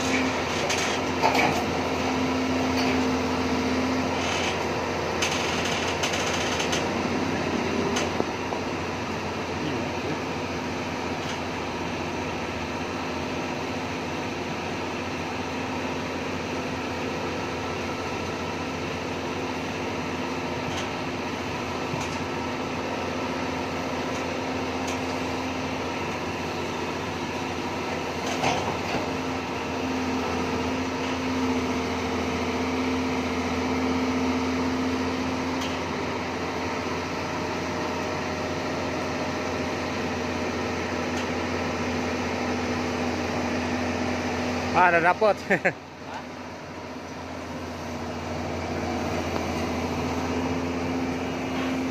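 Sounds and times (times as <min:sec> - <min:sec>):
excavator engine and hydraulics: 0:00.0 - 0:51.9.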